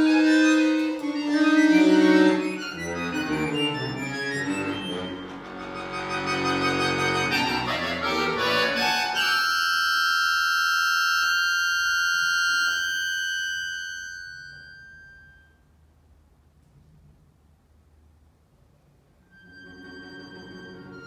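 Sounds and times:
accordion playing chords: 0:00.0 - 0:14.7.

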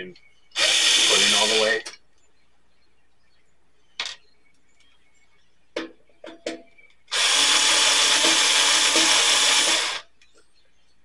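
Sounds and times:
electric drill-driver running: 0:00.6 - 0:01.8, 0:07.1 - 0:10.0.

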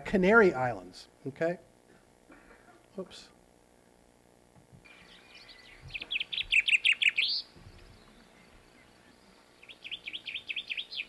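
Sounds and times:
chaffinch song: 0:04.8 - 0:11.0.

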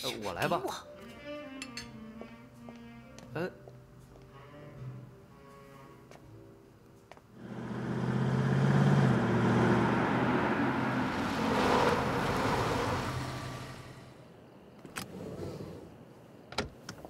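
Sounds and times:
car driving past: 0:07.4 - 0:14.3.

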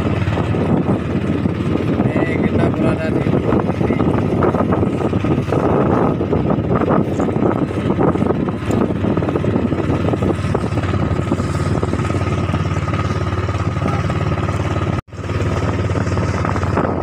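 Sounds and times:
boat engine running: 0:00.0 - 0:17.0
wind and water rushing: 0:00.0 - 0:17.0.

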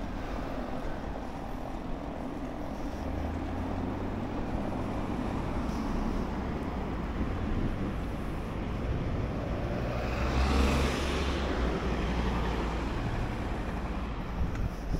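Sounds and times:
small car driving past: 0:08.7 - 0:14.1.

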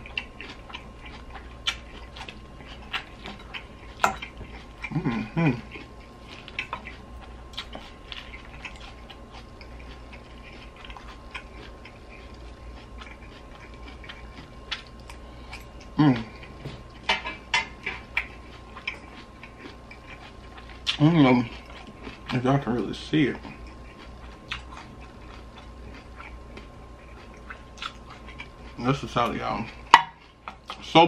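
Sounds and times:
crisp chewing of salad: 0:00.0 - 0:31.0
person humming mm: 0:04.9 - 0:05.7, 0:16.0 - 0:16.4.

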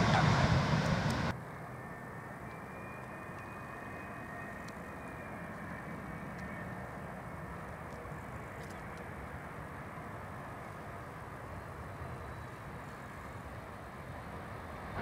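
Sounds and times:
distant jet airliner landing: 0:00.0 - 0:15.0.

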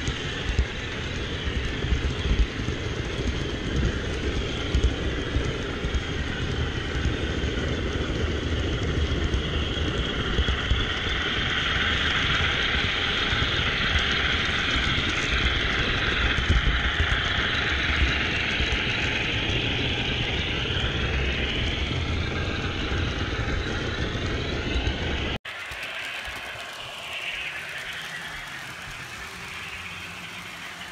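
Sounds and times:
model train rolling on track: 0:00.0 - 0:30.9
wavering whine: 0:00.0 - 0:30.9.

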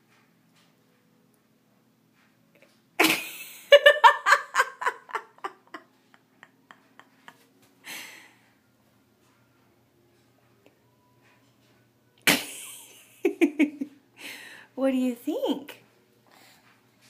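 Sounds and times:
person laughing: 0:03.0 - 0:08.2.

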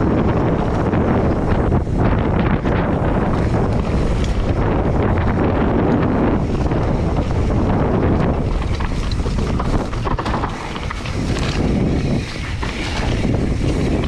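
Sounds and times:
bike clicks and rattles: 0:00.0 - 0:14.0
bike tyres rolling on dirt: 0:00.0 - 0:14.0
wind buffeting microphone: 0:00.0 - 0:14.0.

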